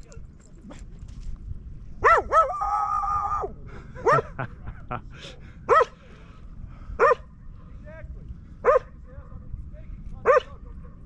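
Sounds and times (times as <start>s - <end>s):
dog barking: 2.0s - 2.6s, 4.0s - 4.4s, 5.7s - 6.0s, 7.0s - 7.2s, 8.6s - 8.9s, 10.2s - 10.6s.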